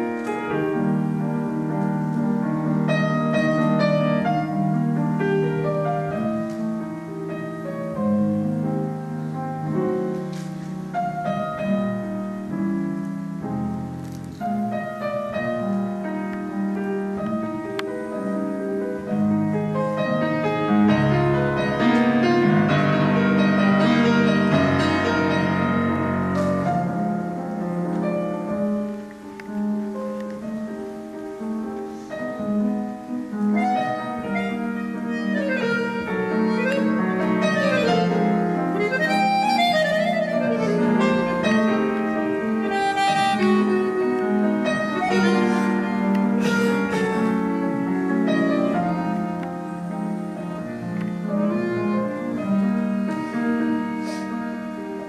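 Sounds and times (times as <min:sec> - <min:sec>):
piano playing: 0:00.0 - 0:55.0
accordion chords: 0:33.4 - 0:54.8.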